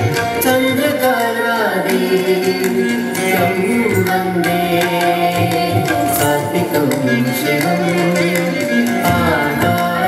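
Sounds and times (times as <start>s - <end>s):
sliding melodic line: 2.0s - 10.0s.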